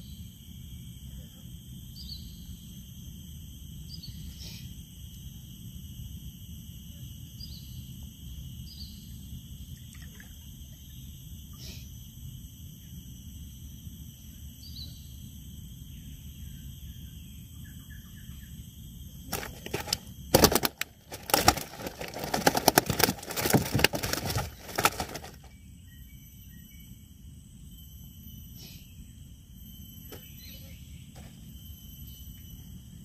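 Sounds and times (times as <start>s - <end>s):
insects chirring: 0.0s - 33.0s
rapid clicks and rustling: 19.3s - 25.5s.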